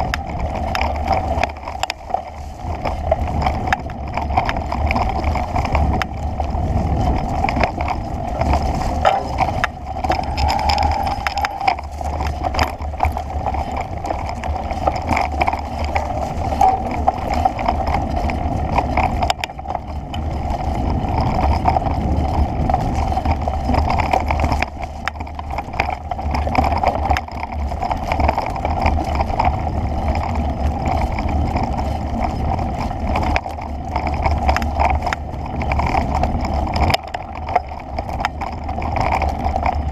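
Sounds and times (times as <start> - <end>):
heavy low rumble: 0.0 - 28.0
small rattles and knocks: 0.0 - 39.9
wind noise on microphone: 0.0 - 39.9.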